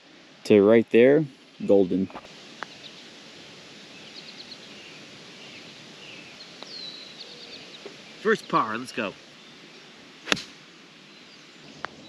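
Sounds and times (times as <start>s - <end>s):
steady background hiss: 0.0s - 12.0s
high bird chirps: 3.9s - 8.6s.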